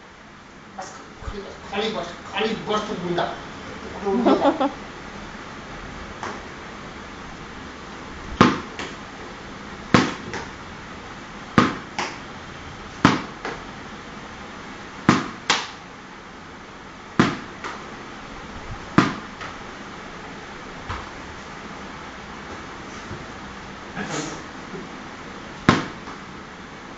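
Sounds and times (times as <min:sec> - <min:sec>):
steady background hum: 0:00.0 - 0:26.9
sharp knocks or slaps: 0:08.4 - 0:09.0, 0:09.9 - 0:10.5, 0:11.6 - 0:12.2, 0:13.0 - 0:13.6, 0:15.1 - 0:15.8, 0:17.2 - 0:17.8, 0:19.0 - 0:19.6, 0:25.7 - 0:26.2.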